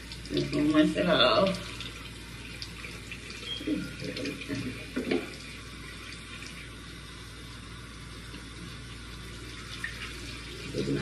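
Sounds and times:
tap running into sink: 3.6s - 5.4s.

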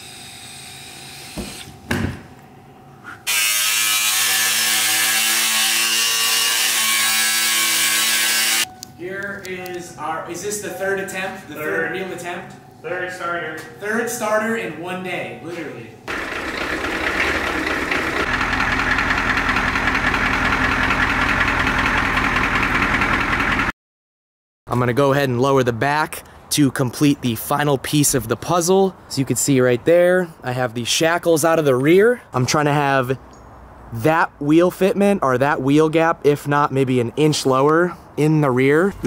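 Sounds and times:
angle grinder cutting metal: 3.2s - 8.7s, 16.1s - 19.0s
diesel truck engine idling: 16.1s - 23.7s.

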